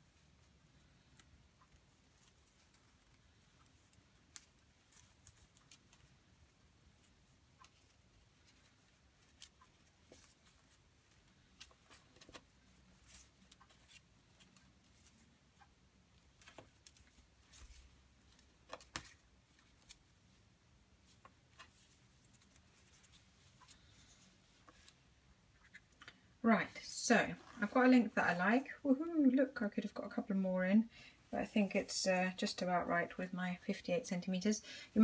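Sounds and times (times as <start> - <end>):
cord rustling and clicking: 0.2 - 20.1, 21.0 - 26.2.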